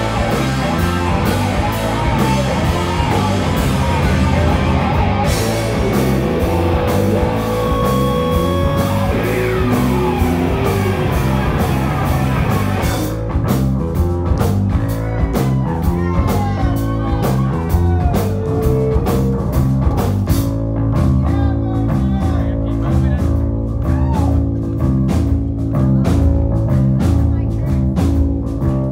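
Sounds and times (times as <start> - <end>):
electric guitars bending notes: 0.0 - 21.2
bass guitar: 0.0 - 28.9
drum kit: 0.0 - 28.9.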